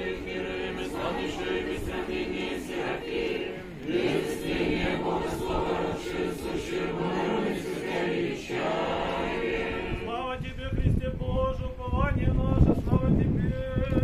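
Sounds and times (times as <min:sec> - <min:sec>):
choir chanting in long held notes: 0:00.0 - 0:10.1.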